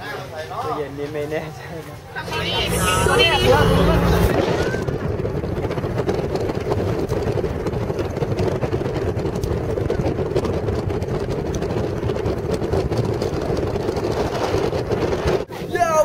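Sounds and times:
low drone: 2.2s - 5.2s
vehicle engine and road noise: 2.2s - 15.5s.

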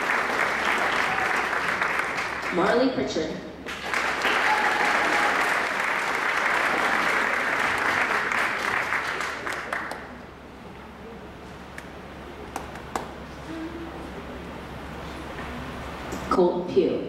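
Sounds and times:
audience applauding: 0.0s - 2.7s, 3.7s - 10.2s, 12.4s - 13.2s.

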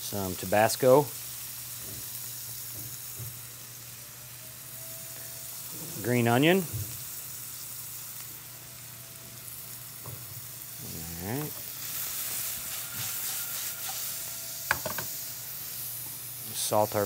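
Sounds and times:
vegetables sizzling in a frying pan: 0.0s - 17.0s.

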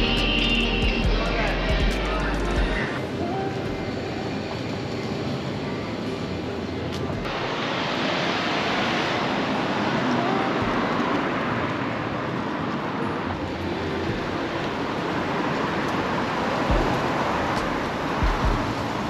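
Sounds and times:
steady rushing noise: 0.0s - 19.0s.

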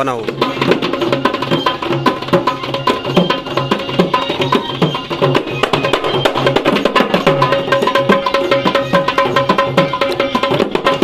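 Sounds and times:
music with fast percussion beat: 0.0s - 11.0s.

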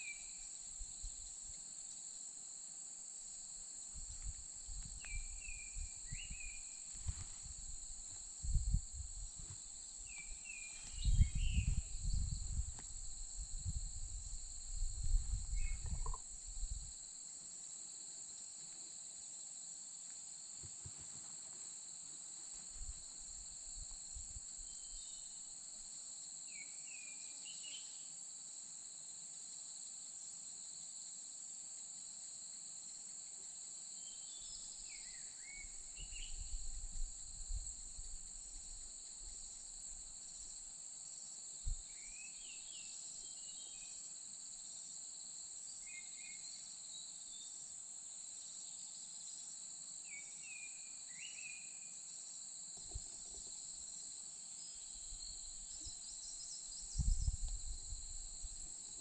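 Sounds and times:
insects droning: 0.0s - 59.0s
bird song chirping: 4.9s - 6.9s, 10.1s - 12.3s, 15.4s - 16.2s.

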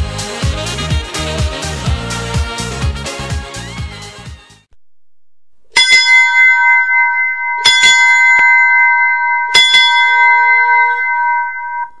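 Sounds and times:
bell ringing: 5.8s - 12.0s.

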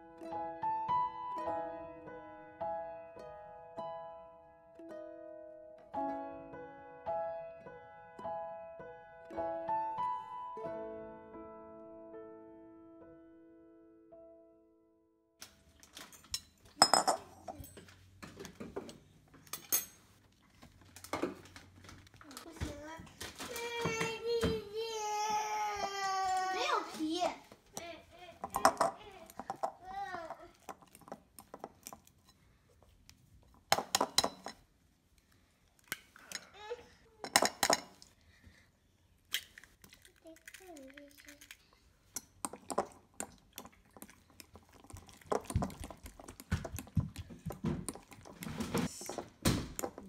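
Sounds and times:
utensils clinking in glass bowl: 15.8s - 18.0s, 19.4s - 20.2s, 27.8s - 32.4s, 33.5s - 34.6s, 37.2s - 38.1s, 39.4s - 50.0s
egg tapped and cracked: 39.3s - 40.6s.

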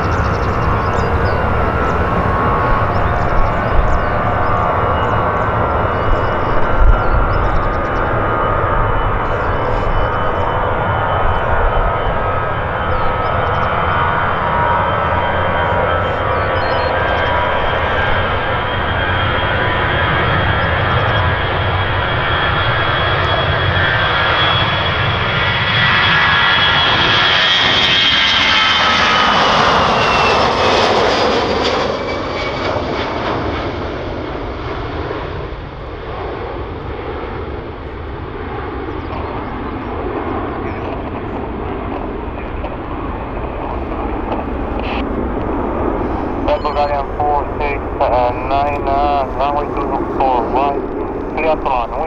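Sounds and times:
jet airliner roaring: 0.0s - 52.0s.

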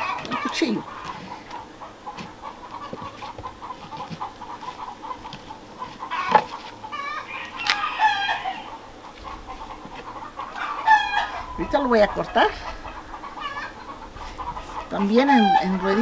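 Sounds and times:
chickens clucking: 0.0s - 16.0s
rooster crowing: 6.0s - 8.8s, 10.2s - 16.0s.

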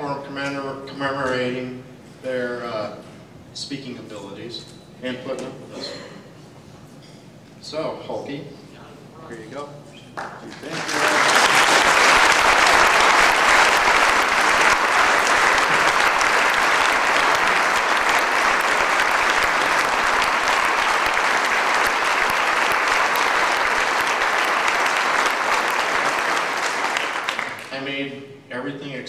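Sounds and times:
audience applauding: 10.2s - 27.8s.

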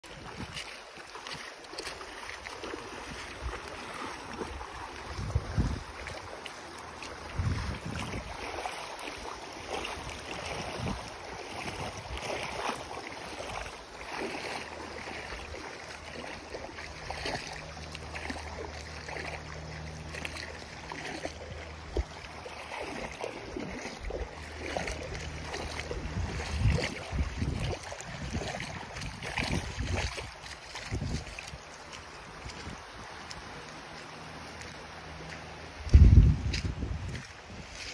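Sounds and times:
water lapping at shoreline: 0.0s - 37.9s
wind buffeting microphone: 3.1s - 6.4s, 7.2s - 12.7s, 22.8s - 33.4s, 35.8s - 37.9s.

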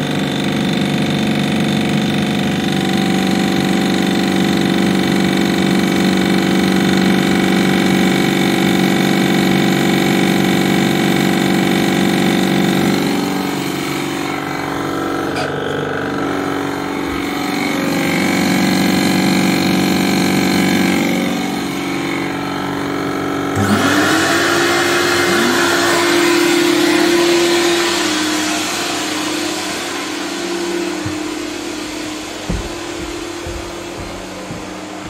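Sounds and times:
humming motor: 0.0s - 35.0s
vacuum motor rush of air: 0.0s - 35.0s
low knocks: 30.9s - 35.0s.

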